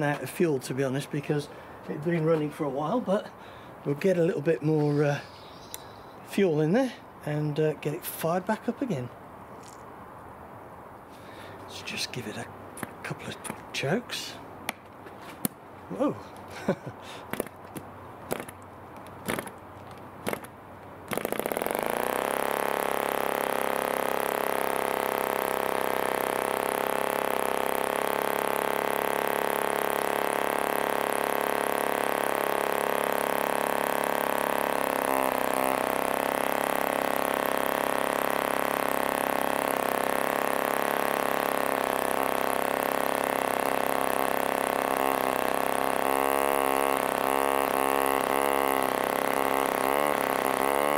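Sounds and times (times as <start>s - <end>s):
propeller flicking clicks: 16.2s - 50.9s
model engine running: 18.3s - 18.6s, 19.2s - 19.6s, 20.2s - 20.5s, 21.1s - 50.9s.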